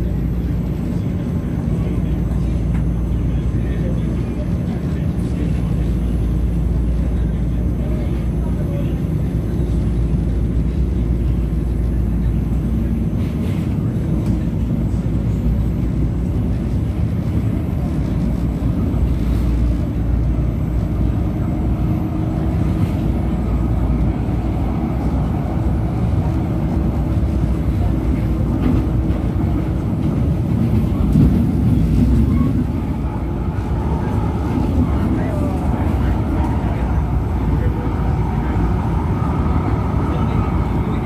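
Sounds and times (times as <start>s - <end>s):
train rumbling on track: 0.0s - 41.0s.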